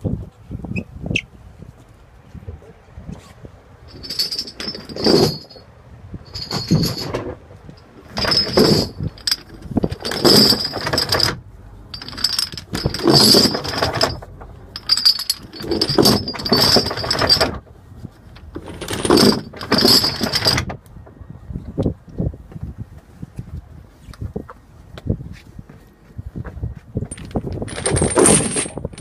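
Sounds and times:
anchor chain clanking and rattling: 3.9s - 20.8s, 27.0s - 29.0s.

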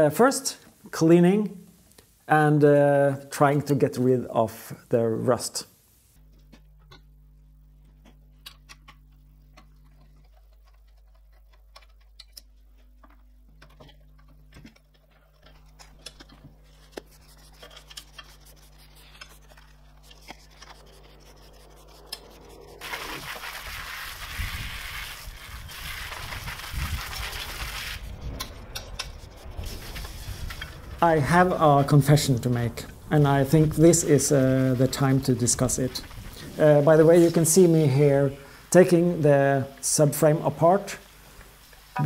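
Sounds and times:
steady low hum: 0.0s - 42.0s
water jet from hose spray: 19.5s - 28.2s.

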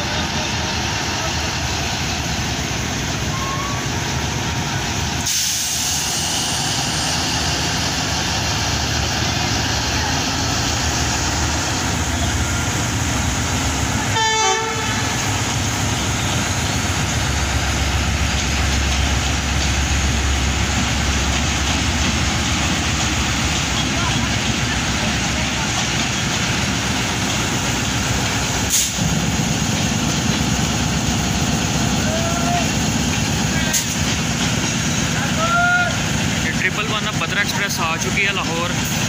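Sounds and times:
locomotive engine rumble: 0.0s - 39.0s
train horn blast: 14.1s - 15.3s.

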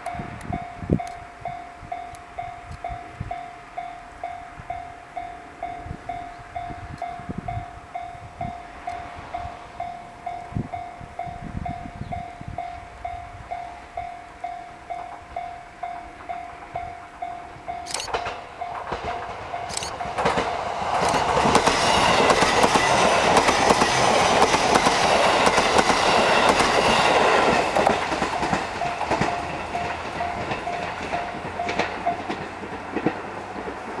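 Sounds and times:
level-crossing warning bell: 0.0s - 33.1s
electric train passing at speed: 0.0s - 34.0s
wheels clacking over rail joints: 13.0s - 34.0s.

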